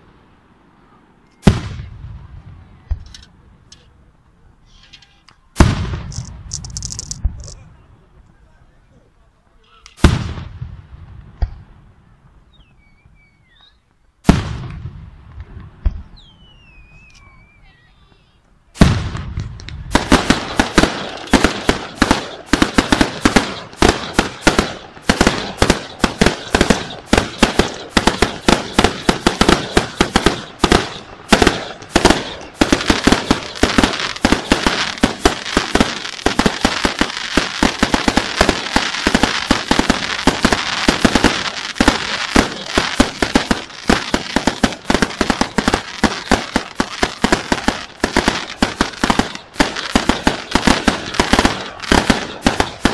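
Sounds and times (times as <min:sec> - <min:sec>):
fireworks crackling: 0:00.0 - 0:52.9
firework shells bursting: 0:04.7 - 0:07.6, 0:18.8 - 0:52.9.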